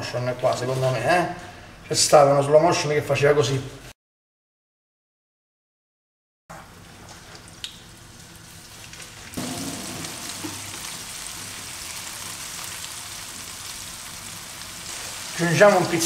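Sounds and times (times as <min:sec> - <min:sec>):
chicken frying in oil: 0:06.7 - 0:16.0.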